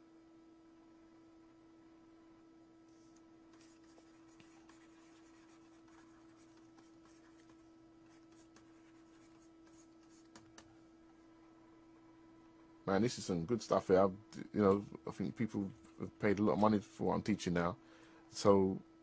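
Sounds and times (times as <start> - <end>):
low electrical hum: 0.0 - 19.0
stylus scratching on tablet: 3.0 - 10.7.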